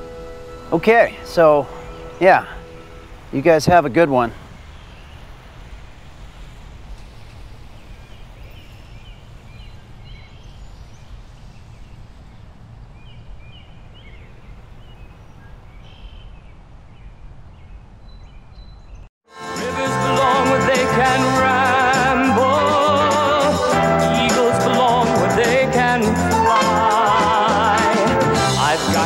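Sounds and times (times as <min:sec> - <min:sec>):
faint bird chirps: 0:07.7 - 0:19.1
music with singing: 0:19.3 - 0:29.0.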